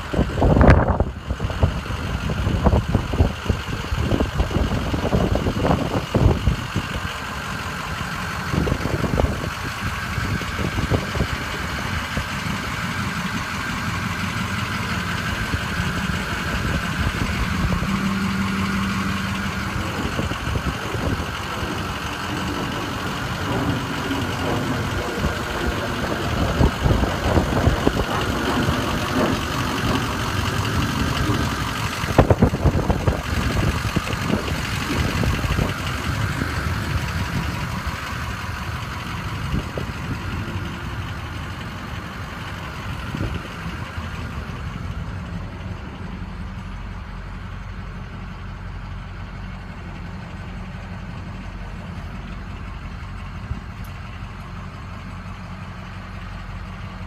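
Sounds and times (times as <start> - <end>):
wind buffeting microphone: 0.0 - 44.7
diesel engine idling: 0.0 - 57.0.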